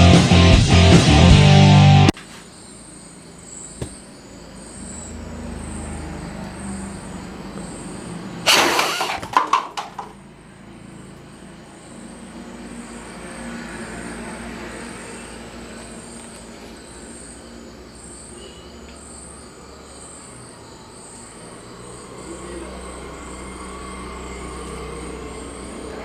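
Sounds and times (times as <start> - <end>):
faint high pulsing chirp: 2.4 - 8.4, 14.8 - 26.0
dart gun shot hitting cups: 8.5 - 10.1
paper cups clattering and tumbling: 8.6 - 10.2.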